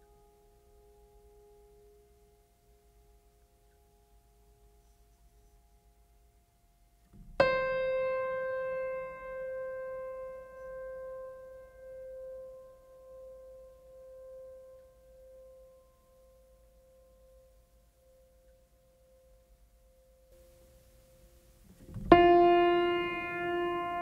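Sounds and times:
loud piano note ringing: 0:07.3 - 0:14.4, 0:21.9 - 0:24.0
piano music: 0:07.3 - 0:15.2, 0:22.0 - 0:24.0.

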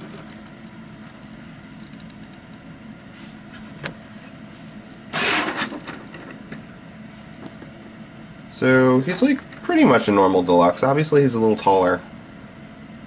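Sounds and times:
plastic toys scraping on table: 0:05.1 - 0:05.8.

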